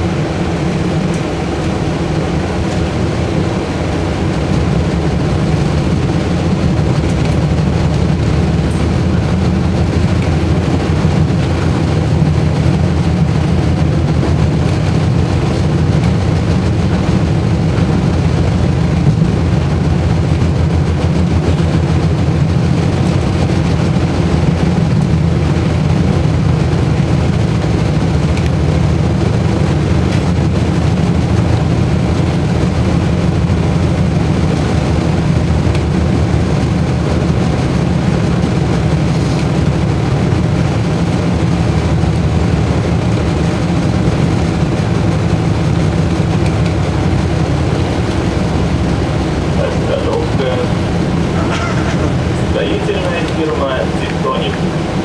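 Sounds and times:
tram cabin low rumble: 0.0 - 55.0.

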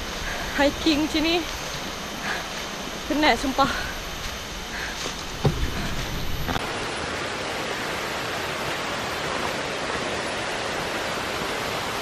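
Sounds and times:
waterfall rushing: 5.3 - 12.0.

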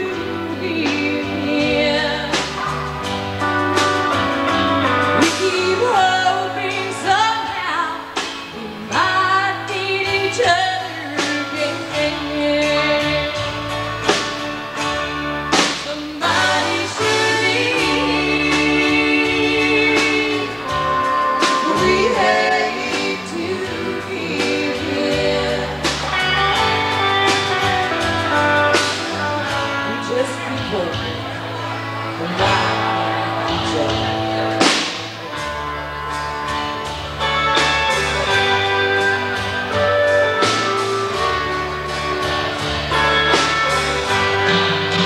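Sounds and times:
person singing: 0.0 - 2.8, 4.8 - 13.7, 15.9 - 31.1, 32.1 - 34.7
guitar bass and drums: 0.0 - 45.0.

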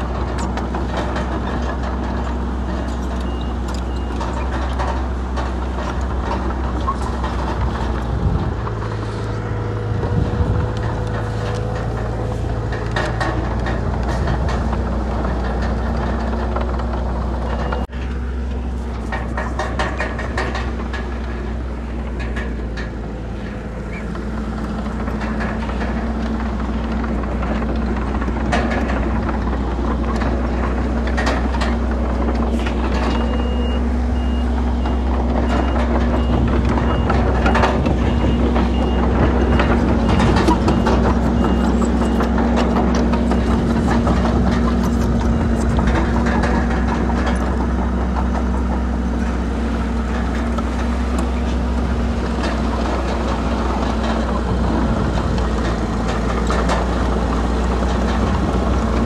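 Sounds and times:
diesel engine running: 0.0 - 59.0
machinery clanks and knocks: 0.0 - 59.0
reversing alarm beeping: 33.0 - 45.8.

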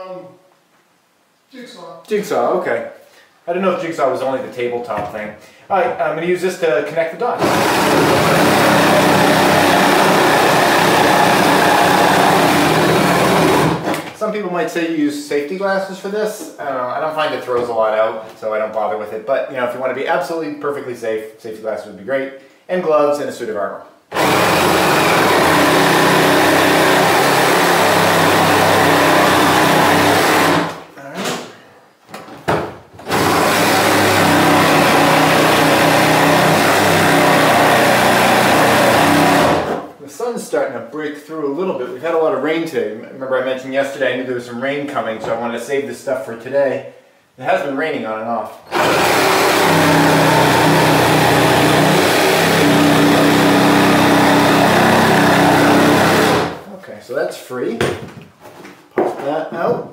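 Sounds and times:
jigsaw cutting wood: 7.4 - 14.0, 24.1 - 30.8, 33.0 - 39.9, 48.7 - 56.6.

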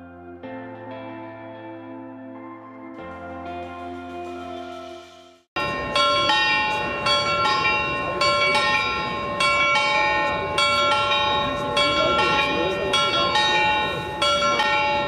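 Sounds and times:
background music: 0.0 - 5.5
church bells ringing: 4.0 - 15.0.

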